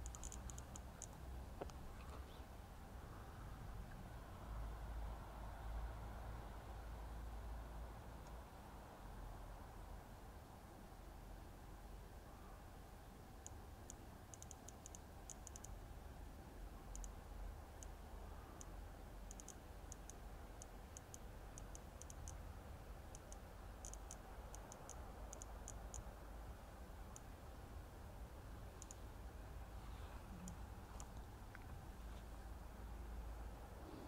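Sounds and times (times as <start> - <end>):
faint high-pitched clicks: 0.0 - 2.5, 8.2 - 8.4, 13.3 - 15.8, 16.8 - 22.4, 23.1 - 26.2, 27.1 - 27.3, 28.7 - 29.4, 30.3 - 32.3
low steady rumble: 0.0 - 34.0.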